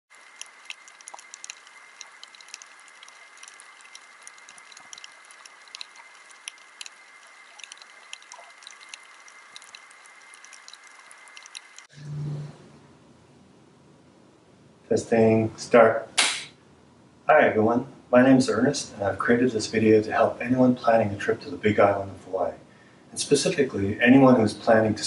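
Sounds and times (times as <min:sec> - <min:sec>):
steady underwater hiss: 0:00.1 - 0:11.9
snapping shrimp clicks: 0:00.2 - 0:11.9
low hum: 0:00.2 - 0:13.8.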